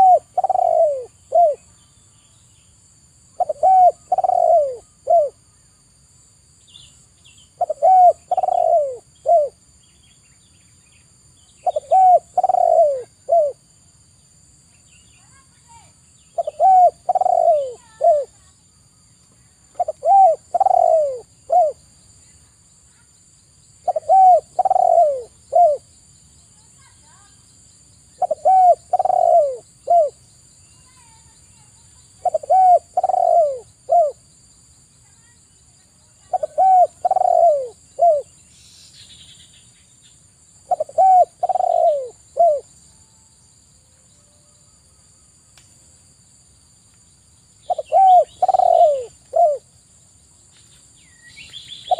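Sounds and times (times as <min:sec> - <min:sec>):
dove cooing: 0:00.0 - 0:01.7, 0:03.4 - 0:05.4, 0:07.6 - 0:09.6, 0:11.6 - 0:13.6, 0:16.4 - 0:18.5, 0:19.7 - 0:21.8, 0:23.8 - 0:25.9, 0:28.2 - 0:30.2, 0:32.2 - 0:34.2, 0:36.2 - 0:38.4, 0:40.7 - 0:42.7, 0:47.7 - 0:49.7.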